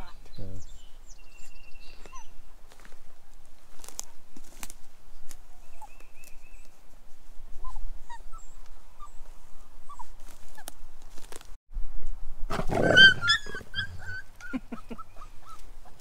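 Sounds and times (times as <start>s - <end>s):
small birds chirping: 0.0s - 2.7s, 5.2s - 7.0s, 7.6s - 10.7s, 13.2s - 16.0s.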